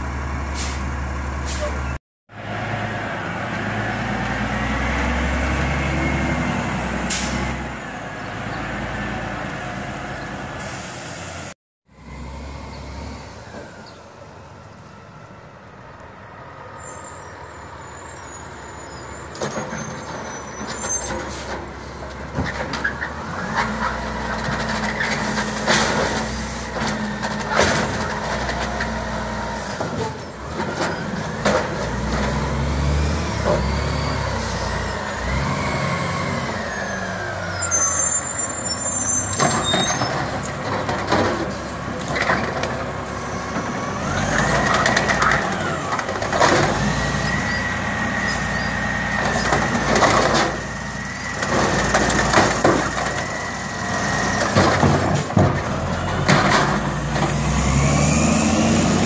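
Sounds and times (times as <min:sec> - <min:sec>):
diesel engine under load: 0:00.0 - 0:59.0
air brakes hissing: 0:00.5 - 0:01.8, 0:07.1 - 0:07.6, 0:10.6 - 0:11.5
carts clanking and knocking: 0:39.3 - 0:46.9, 0:49.2 - 0:50.8, 0:51.4 - 0:53.4, 0:54.0 - 0:57.6.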